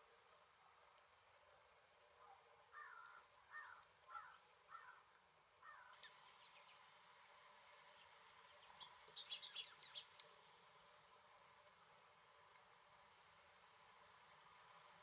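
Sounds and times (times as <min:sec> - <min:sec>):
bird harsh calls: 0:02.7 - 0:05.0, 0:05.6 - 0:06.8, 0:08.0 - 0:10.3
high thin bird chirps: 0:05.7 - 0:06.9, 0:07.9 - 0:10.4.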